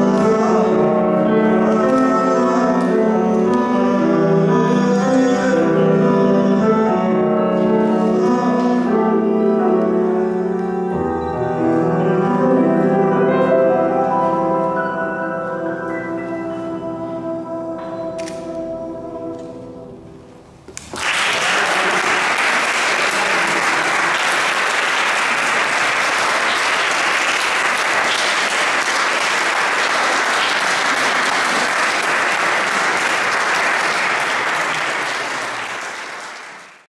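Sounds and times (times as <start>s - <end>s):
held music notes: 0.0s - 20.7s
audience applause: 20.9s - 36.9s.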